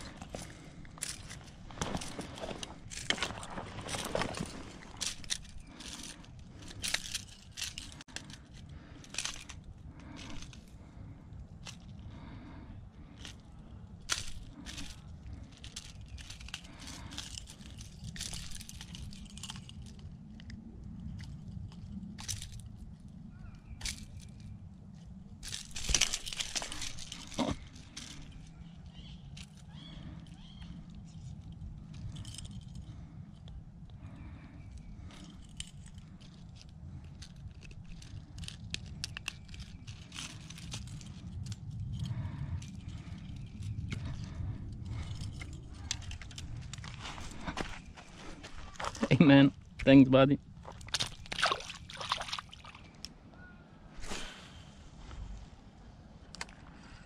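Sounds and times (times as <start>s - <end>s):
handling rustles crunches and clicks: 0.0s - 53.3s, 54.0s - 57.0s
low steady rumble: 0.0s - 57.0s.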